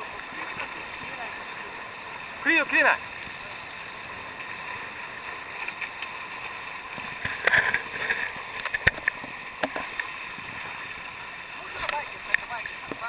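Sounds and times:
water rushing along hull: 0.0s - 13.0s
sharp clicks and knocks: 7.2s - 10.1s.

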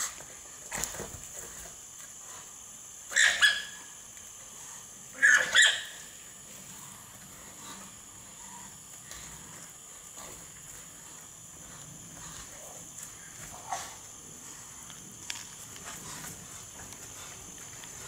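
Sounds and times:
alpacas screaming: 3.1s - 3.8s, 5.2s - 6.0s.

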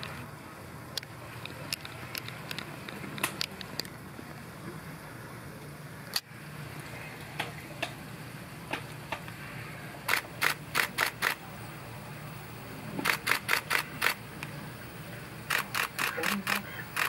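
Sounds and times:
camera shutter clicks: 10.1s - 11.4s, 13.0s - 14.2s, 15.5s - 17.0s.

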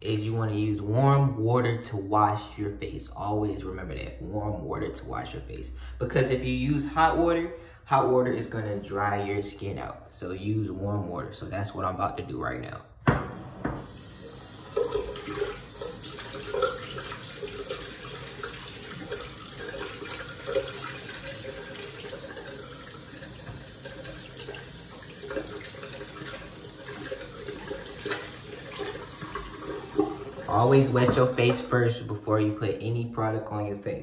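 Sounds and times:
sink tap running: 13.1s - 31.7s
water splashing: 13.7s - 31.5s.

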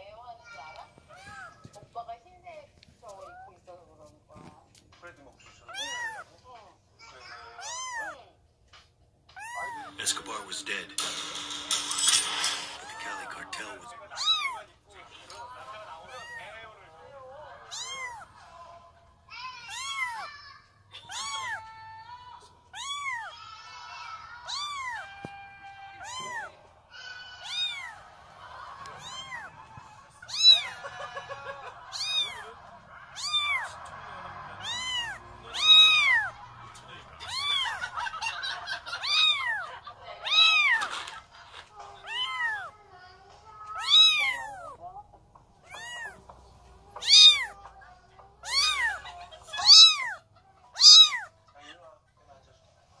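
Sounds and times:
kitten mewing: 5.7s - 6.3s, 7.4s - 8.2s, 9.4s - 10.0s, 14.2s - 14.6s, 16.1s - 16.4s, 17.6s - 18.3s, 19.7s - 20.3s, 21.0s - 21.7s, 22.7s - 23.3s, 24.4s - 26.5s, 27.4s - 28.0s, 29.0s - 29.5s, 30.2s - 30.8s, 31.9s - 32.5s, 33.1s - 33.8s, 34.6s - 36.4s, 37.2s - 37.9s, 39.0s - 40.9s, 42.0s - 42.7s, 43.8s - 44.8s, 45.6s - 46.2s, 46.9s - 47.6s, 48.4s - 50.2s, 50.8s - 51.3s.

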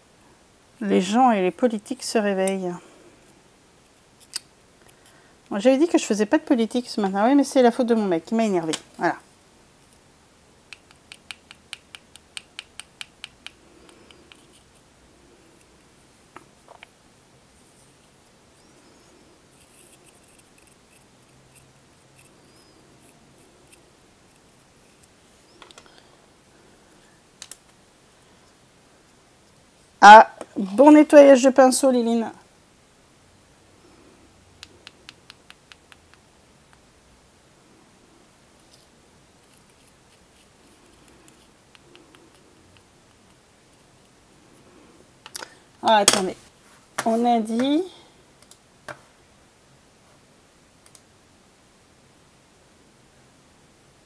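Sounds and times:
palette knife scraping and clicking: 19.5s - 24.5s.

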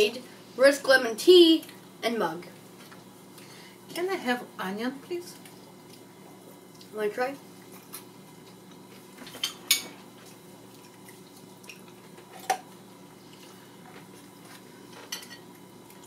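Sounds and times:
faint room hum: 0.0s - 16.0s
tableware and cutlery clinking: 15.0s - 15.5s.

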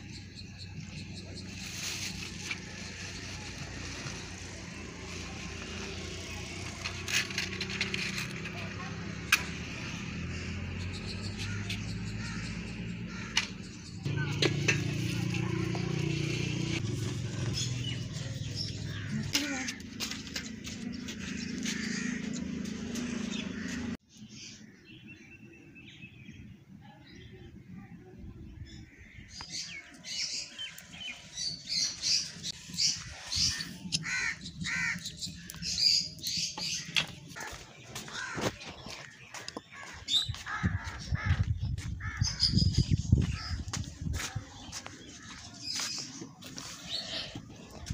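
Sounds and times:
crows cawing: 11.4s - 13.5s, 21.3s - 22.8s, 23.5s - 23.9s, 33.0s - 35.6s, 36.6s - 42.5s.

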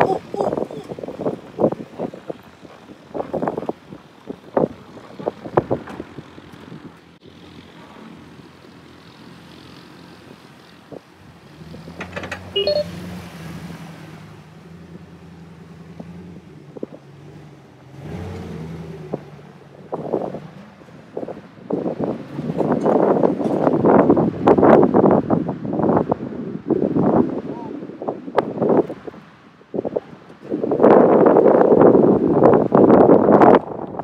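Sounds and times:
truck engines under load: 0.0s - 34.0s
short high beeps: 12.6s - 13.0s.

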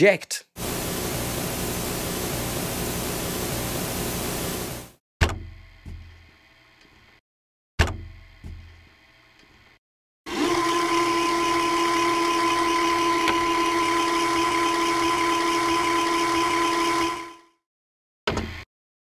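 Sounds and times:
synth hiss with steady tones: 0.6s - 5.0s.

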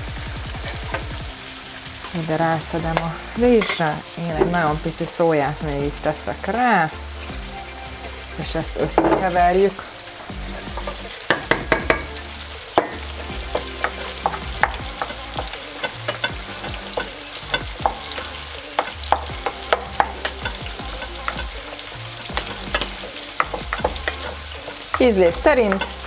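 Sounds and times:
spoon clinking and scraping metal bowl: 3.0s - 4.0s, 12.8s - 26.0s.

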